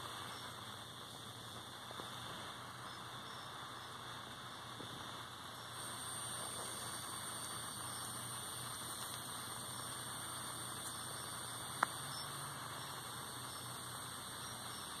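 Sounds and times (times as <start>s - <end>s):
background hiss: 0.0s - 15.0s.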